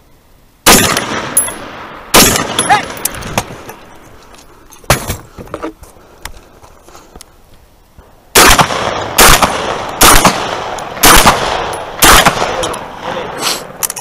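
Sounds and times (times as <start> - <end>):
rifle shots echoing: 0.6 - 3.7, 8.3 - 13.8.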